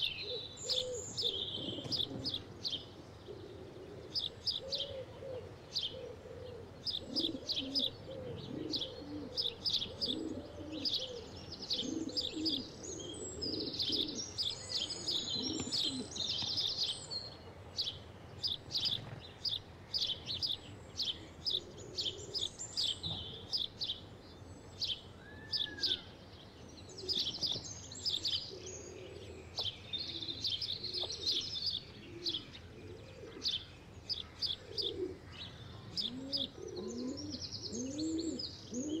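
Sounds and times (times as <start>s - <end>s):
pigeon cooing: 0.0s - 16.9s, 21.1s - 23.6s, 28.2s - 33.7s, 34.4s - 39.0s
small birds chirping: 0.0s - 39.0s.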